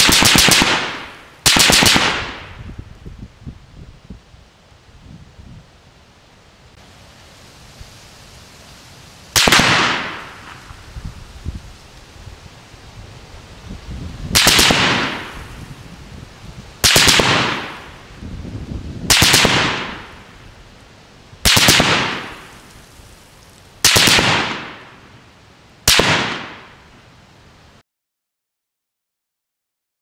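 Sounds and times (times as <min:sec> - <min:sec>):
gunfire echo: 0:00.0 - 0:02.6, 0:09.4 - 0:10.7, 0:14.4 - 0:15.5, 0:16.8 - 0:17.9, 0:19.1 - 0:20.2, 0:21.5 - 0:22.5, 0:23.8 - 0:25.0, 0:25.9 - 0:26.8.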